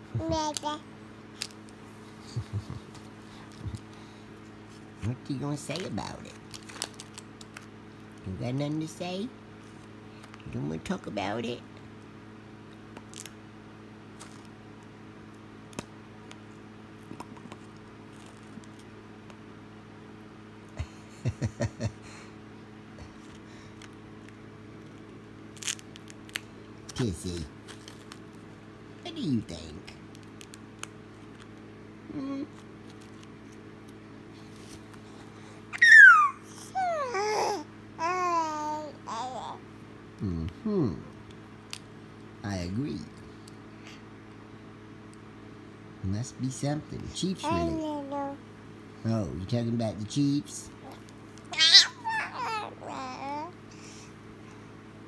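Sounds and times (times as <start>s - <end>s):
low electrical hum: 0.0s - 55.0s
baby squealing: 35.7s - 39.6s, 50.8s - 53.5s
baby babbling: 35.8s - 39.6s, 47.4s - 48.4s, 50.8s - 53.6s.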